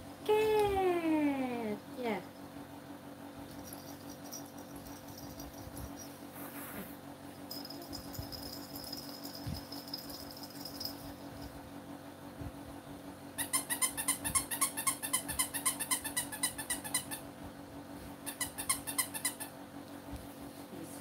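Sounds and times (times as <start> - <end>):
baby rattle toy jingling: 3.5 - 6.1, 7.5 - 11.4.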